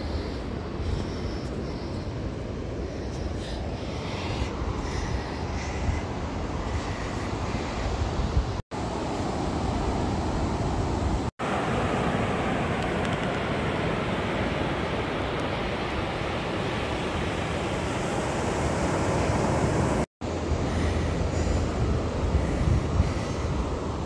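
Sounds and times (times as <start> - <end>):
wind on microphone: 0.0 - 8.6, 20.6 - 24.0
ocean surf on sand: 0.0 - 24.0.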